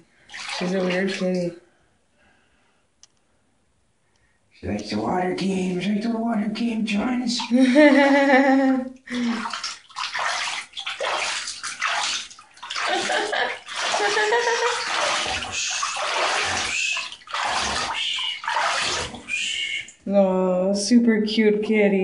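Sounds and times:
hands splashing water in bathtub: 0.0s - 1.5s, 7.0s - 20.0s
person speaking: 4.6s - 9.5s.

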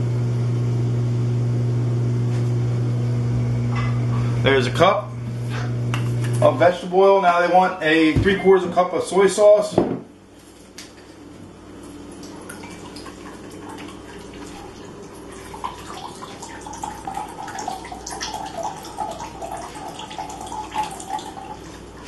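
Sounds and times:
liquid pouring into cup: 12.1s - 22.0s.

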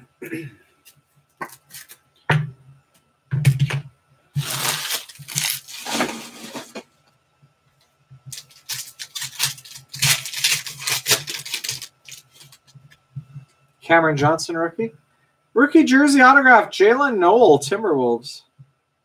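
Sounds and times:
wrapper crinkling and tearing: 4.4s - 6.8s, 8.3s - 12.8s
cards rustling and clicking: 8.3s - 12.8s.

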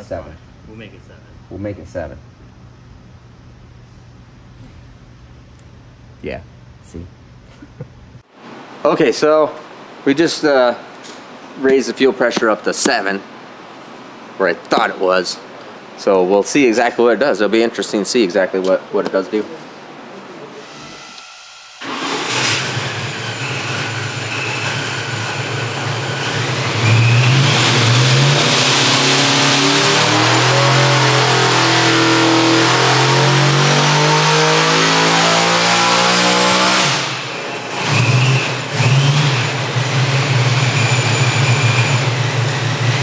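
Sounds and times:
supercharger whine: 20.7s - 43.0s
engine revving: 21.8s - 43.0s.

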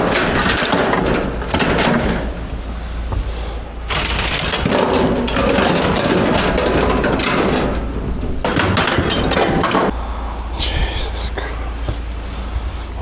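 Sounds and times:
scrap metal knocking and clattering: 0.0s - 10.0s.

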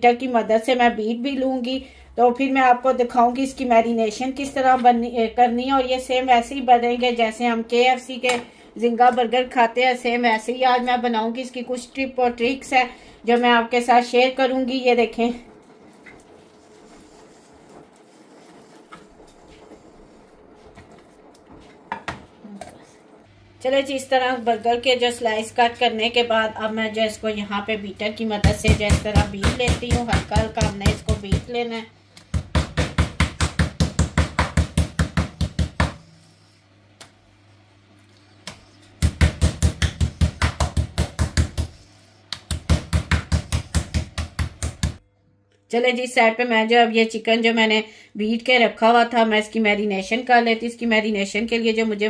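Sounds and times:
meat mallet pounding chicken: 28.4s - 31.5s, 32.2s - 36.0s, 38.5s - 45.0s.

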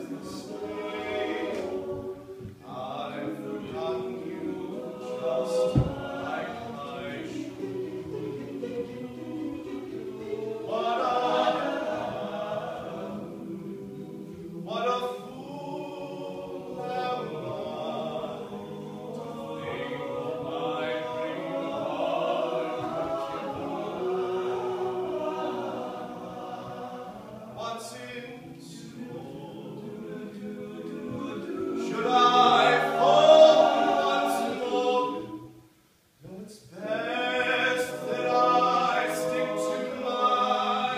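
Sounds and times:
male a cappella group singing: 0.0s - 35.6s, 36.3s - 40.9s.

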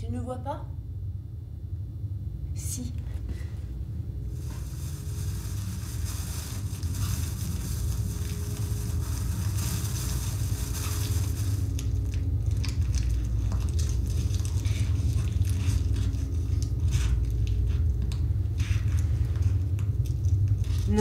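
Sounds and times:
steady low rumble: 0.0s - 21.0s
crackling and crunching: 4.3s - 21.0s.

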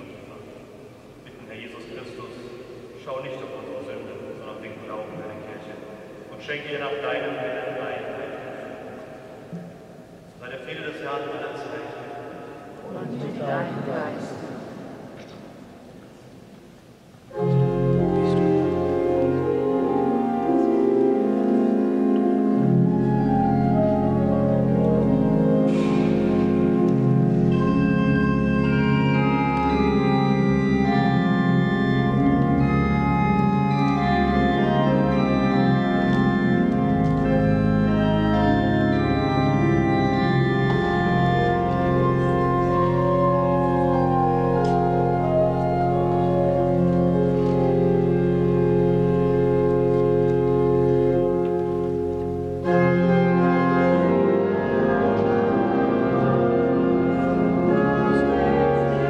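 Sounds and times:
pipe organ sustained chords: 0.0s - 59.0s
organ pedal bass: 17.3s - 59.0s.

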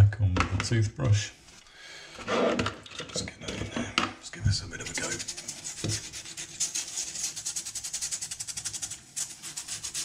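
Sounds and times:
toothbrush scrubbing wet wood: 4.9s - 10.0s.

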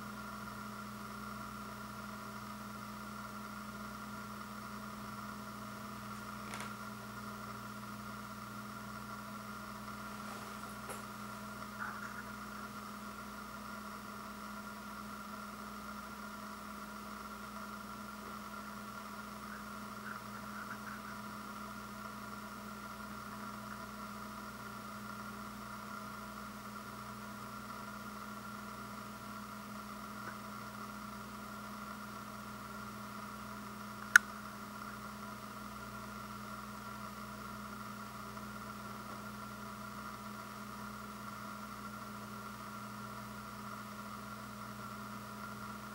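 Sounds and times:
steady background hum: 0.0s - 45.9s
sharp click: 34.0s - 34.3s.

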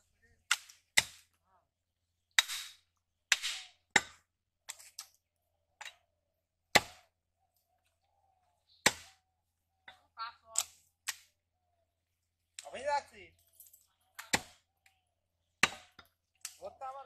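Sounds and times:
cleaver chopping on wooden block: 6.7s - 7.1s, 8.8s - 9.2s, 15.6s - 16.1s.

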